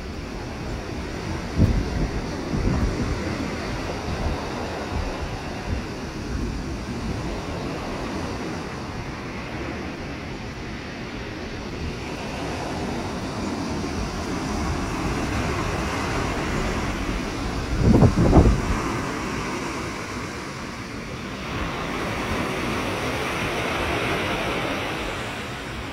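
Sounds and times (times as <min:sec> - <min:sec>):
surf breaking on beach: 0:00.0 - 0:25.9
wind rumbling on microphone: 0:00.0 - 0:25.9.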